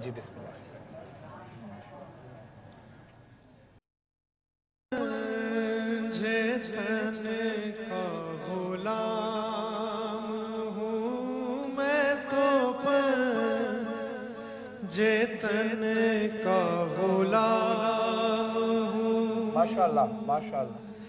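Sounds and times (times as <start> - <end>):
man singing devotional song: 4.9 - 21.0.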